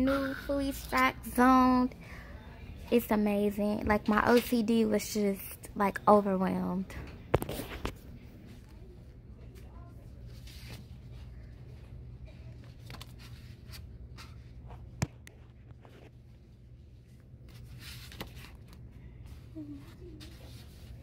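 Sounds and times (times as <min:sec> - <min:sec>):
steady low hum: 0:00.0 - 0:21.0
faint voice: 0:19.5 - 0:20.8.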